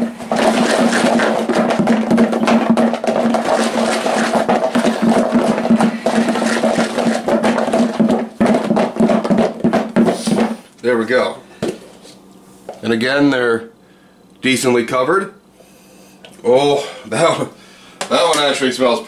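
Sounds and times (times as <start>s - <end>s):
food rattling in plastic container: 0.0s - 10.1s.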